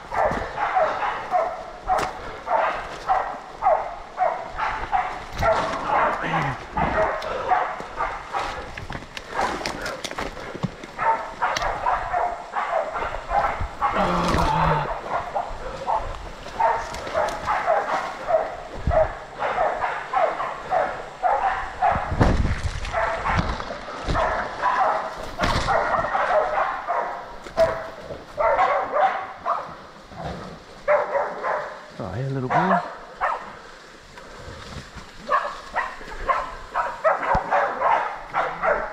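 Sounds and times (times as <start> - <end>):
dogs barking: 0.0 - 22.2, 22.9 - 34.2, 35.2 - 38.9.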